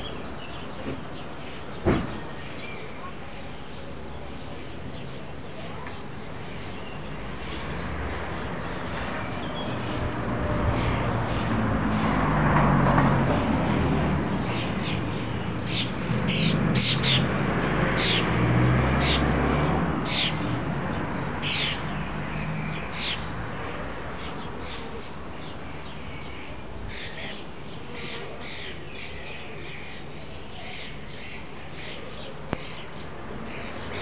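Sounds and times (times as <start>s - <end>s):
birds calling sharply: 14.3s - 17.4s, 18.0s - 34.0s.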